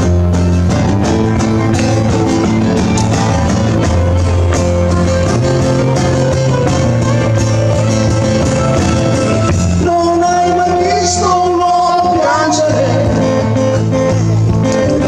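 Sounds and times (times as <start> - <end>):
bass guitar line: 0.0 - 15.0
pop-rock band playing: 0.0 - 15.0
man singing: 9.7 - 15.0.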